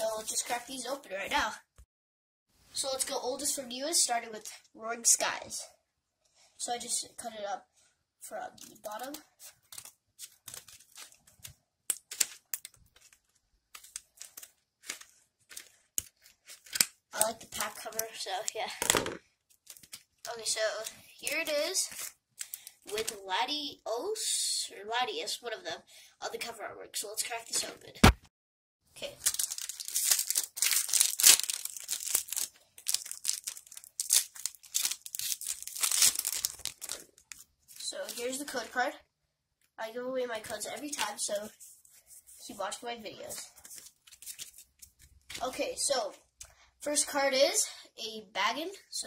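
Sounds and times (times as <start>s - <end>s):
foil wrapper crinkling: 8.7s - 17.0s, 19.5s - 20.1s, 29.1s - 38.2s.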